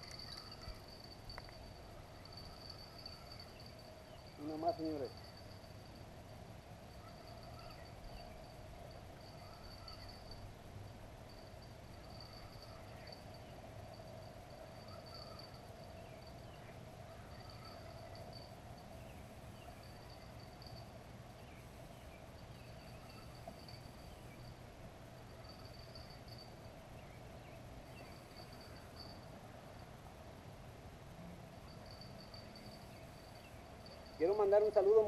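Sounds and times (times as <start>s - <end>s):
insect trilling: 0.0s - 6.0s, 6.9s - 10.4s
steady low hum: 0.0s - 35.0s.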